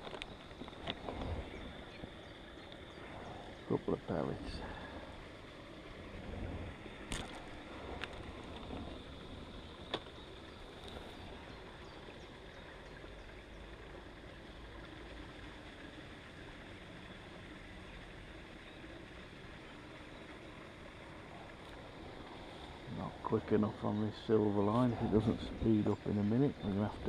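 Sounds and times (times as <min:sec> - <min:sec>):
wind rumble on microphone: 0:00.0 - 0:02.3, 0:05.9 - 0:12.0, 0:22.6 - 0:27.0
outdoor background hiss: 0:00.0 - 0:27.0.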